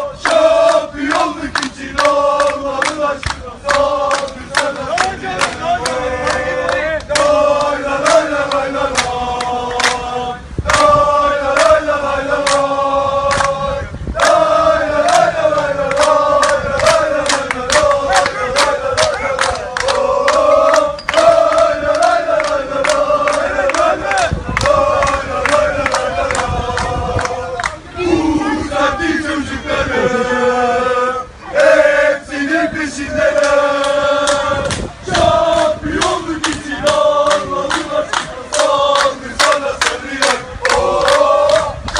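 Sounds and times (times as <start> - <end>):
men chanting in unison: 0.0 - 41.9
hand claps: 0.2 - 10.0, 13.3 - 13.6, 15.9 - 27.8, 33.4 - 41.9.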